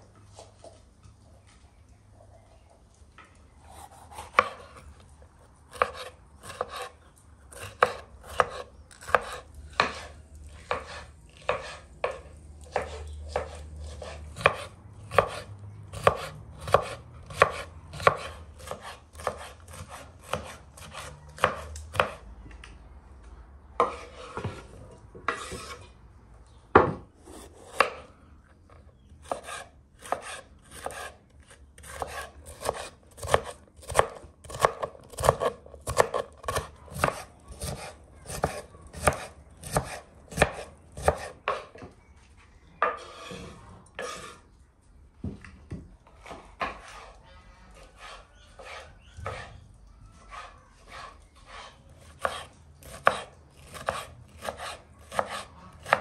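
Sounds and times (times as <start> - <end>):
knife chopping on cutting board: 3.8 - 4.8, 5.7 - 6.9, 7.5 - 22.2, 29.2 - 31.2, 31.8 - 41.7, 48.0 - 49.5, 50.3 - 56.0
scraping on cutting board: 7.6 - 22.2, 23.8 - 26.0, 42.8 - 44.5, 46.2 - 47.2, 47.8 - 49.6, 50.3 - 56.0.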